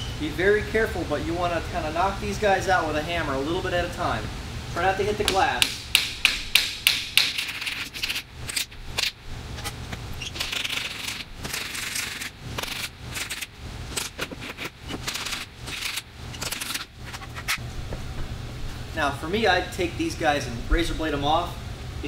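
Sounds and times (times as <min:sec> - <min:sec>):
scraping: 0:07.4 - 0:18.8.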